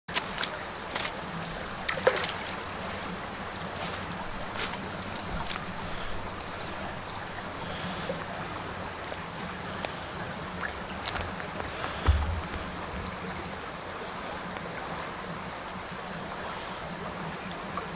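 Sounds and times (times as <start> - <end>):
rushing water: 0.1 - 17.9
dull low thump: 11.9 - 13.1.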